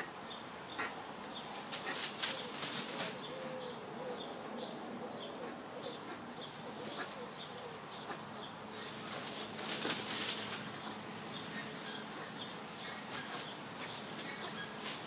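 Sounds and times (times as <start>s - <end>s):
ducklings peeping: 10.8s - 15.0s.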